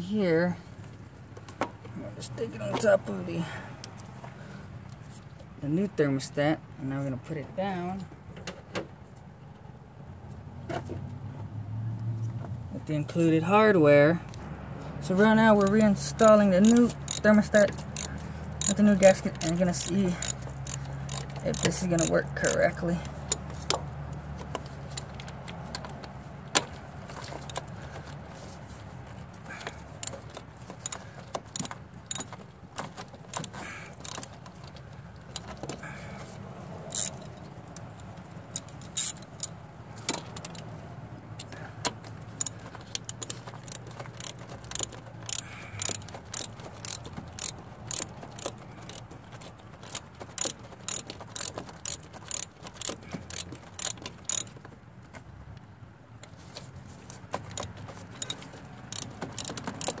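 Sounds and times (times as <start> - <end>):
socket ratchet clicking: 15.5 - 22.7, 29.6 - 32.4, 33.3 - 34.4, 36.9 - 37.3, 38.5 - 39.6, 42.4 - 49.1, 49.8 - 54.5, 57.5 - 60.0.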